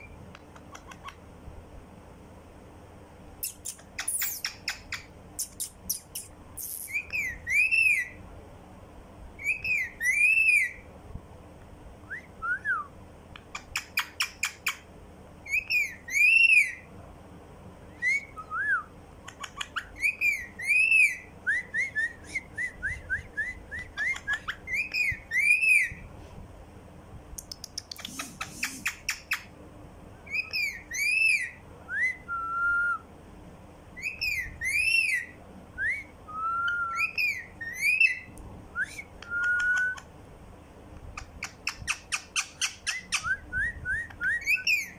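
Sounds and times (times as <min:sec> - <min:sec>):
parakeet clicks: 0:00.3 - 0:01.2, 0:19.2 - 0:19.8, 0:27.4 - 0:29.4
parakeet whistling and chirping: 0:03.4 - 0:08.2, 0:09.4 - 0:10.8, 0:13.5 - 0:14.8, 0:15.4 - 0:16.9, 0:17.9 - 0:26.0, 0:27.7 - 0:29.5, 0:30.2 - 0:33.0, 0:34.0 - 0:40.1, 0:41.2 - 0:44.9.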